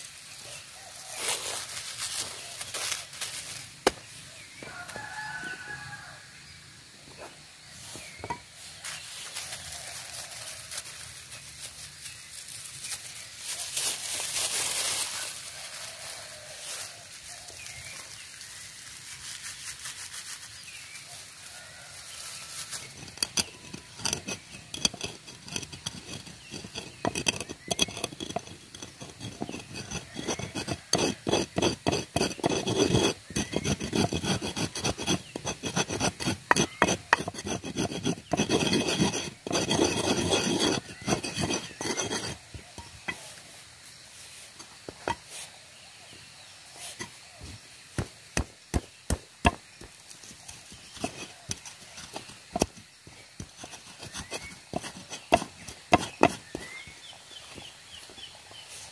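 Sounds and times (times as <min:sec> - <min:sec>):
pestle grinding seeds in mortar: 0:22.6 - 0:43.4, 0:46.9 - 0:58.7.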